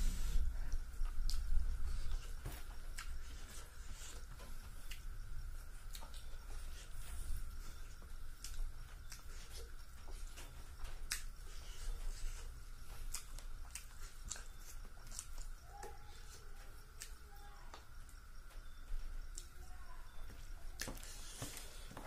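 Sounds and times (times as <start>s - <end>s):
faint steady hum: 0.0s - 22.0s
chewing and mouth clicks: 0.7s - 2.2s, 2.9s - 5.1s, 5.7s - 16.3s.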